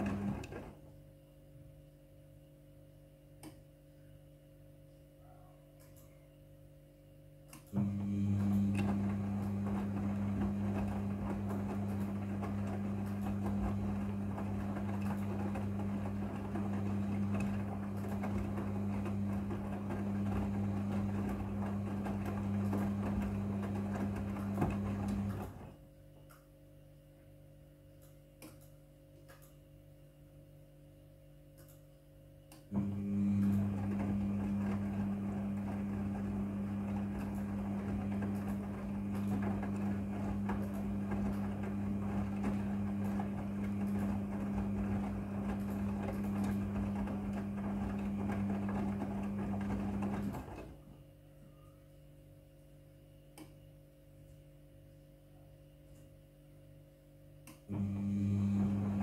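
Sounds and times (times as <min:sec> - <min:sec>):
laundry tumbling: 0:00.0 - 0:00.8, 0:08.4 - 0:25.7, 0:33.1 - 0:50.8
washing machine drum humming: 0:00.0 - 0:01.1, 0:07.6 - 0:25.9, 0:32.6 - 0:51.8, 0:57.4 - 0:59.0.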